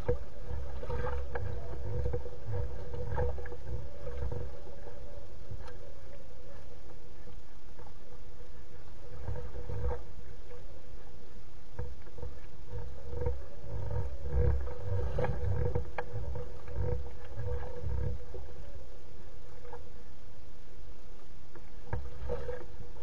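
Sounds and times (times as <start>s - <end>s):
faint steady hum: 0.0s - 23.0s
light ticks: 14.4s - 17.6s.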